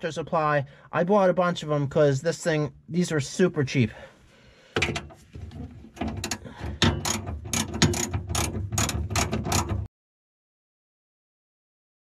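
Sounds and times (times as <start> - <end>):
ratchet wrench clicking: 6.2 - 9.8.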